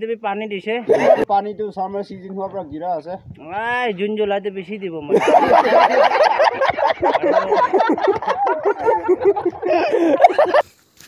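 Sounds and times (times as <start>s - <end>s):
people laughing and talking: 0.8s - 1.4s, 5.0s - 10.6s.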